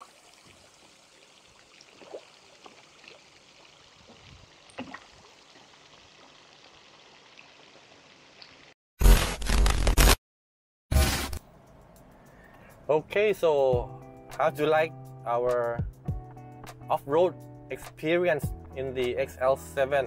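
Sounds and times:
water lapping: 0:00.3 - 0:06.5
fish splashing at surface: 0:01.6 - 0:03.9.

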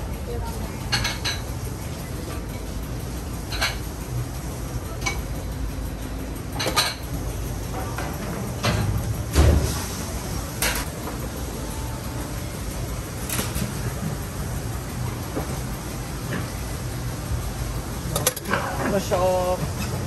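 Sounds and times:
steady low hum: 0:00.0 - 0:20.0
dishes and utensils clinking: 0:00.9 - 0:01.5, 0:06.6 - 0:07.1, 0:18.1 - 0:19.0.

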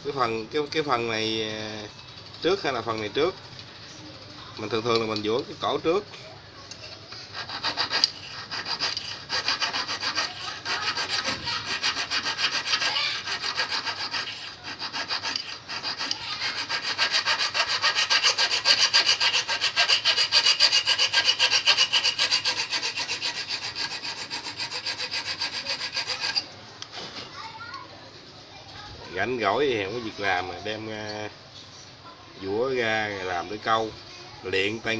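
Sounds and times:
hand file rasping on steel hook: 0:07.3 - 0:26.5.

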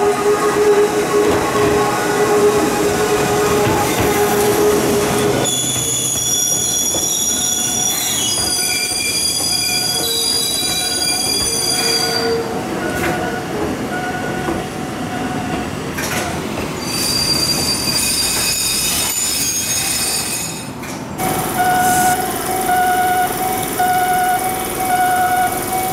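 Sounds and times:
train wheels squealing: 0:05.4 - 0:12.4, 0:16.8 - 0:20.8.

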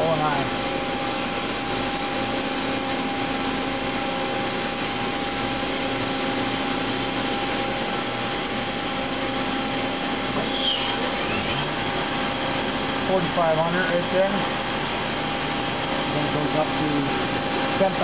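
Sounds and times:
machine hum: 0:00.0 - 0:18.0
machine spindle whine: 0:00.0 - 0:18.0.

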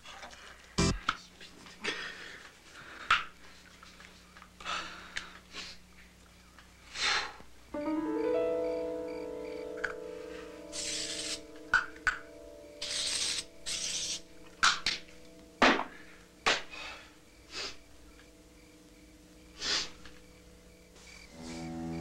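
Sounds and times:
short hissing bursts: 0:10.6 - 0:11.6, 0:12.8 - 0:14.3
sharp smacks: 0:14.6 - 0:16.8.

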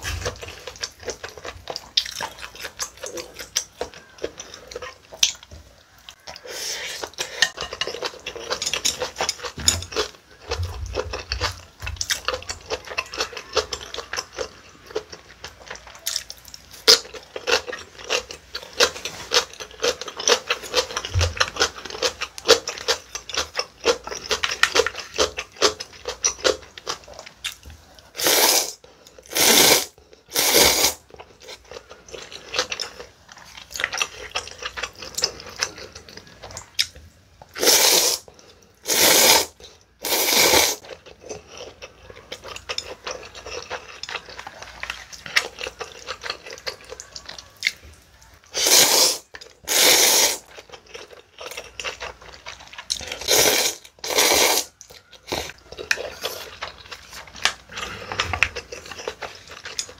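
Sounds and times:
loud noodle slurps: 0:28.2 - 0:31.0, 0:37.6 - 0:40.8, 0:48.6 - 0:50.5, 0:53.1 - 0:54.7.

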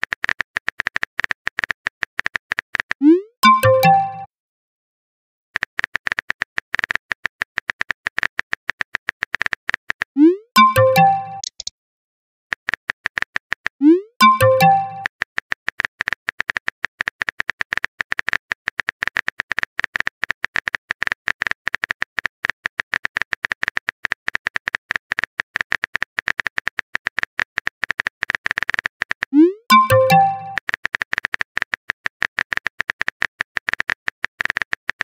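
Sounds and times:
keyboard typing clicks: 0:01.6 - 0:04.3, 0:07.6 - 0:11.7, 0:13.8 - 0:15.1, 0:27.9 - 0:35.0.

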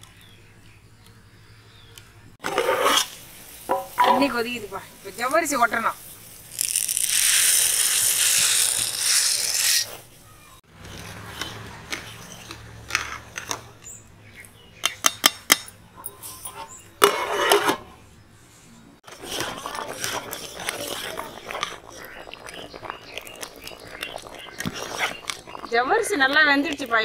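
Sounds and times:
hissing sizzle from pot: 0:02.5 - 0:10.2.

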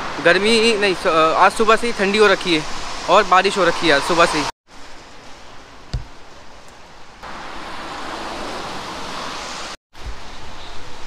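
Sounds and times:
traffic hiss on wet road: 0:00.0 - 0:05.0, 0:07.2 - 0:11.0.

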